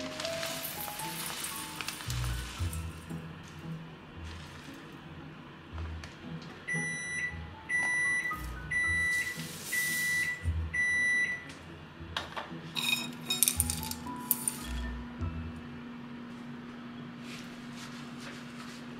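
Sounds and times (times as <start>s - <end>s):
oats rattling into glass bowl: 0.1s - 3.0s, 12.8s - 14.7s
appliance beeper high beeps: 6.7s - 11.5s.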